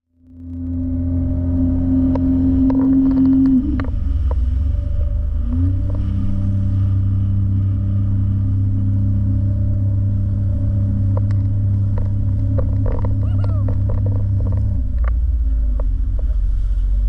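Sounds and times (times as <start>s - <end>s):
jet ski engine drone: 0.1s - 17.0s.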